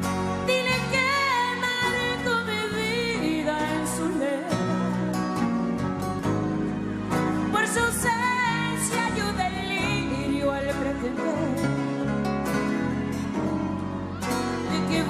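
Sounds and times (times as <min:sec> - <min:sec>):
plucked guitar accompaniment: 0:00.0 - 0:15.0
wavering melodic lead line: 0:00.0 - 0:15.0.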